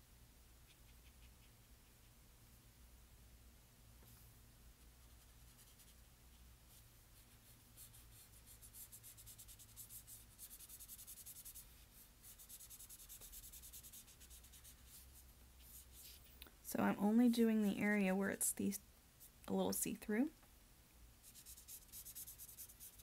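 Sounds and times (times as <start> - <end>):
marker scratching on paper: 0.6 - 2.2, 5.0 - 6.1, 7.2 - 16.3, 21.2 - 23.0.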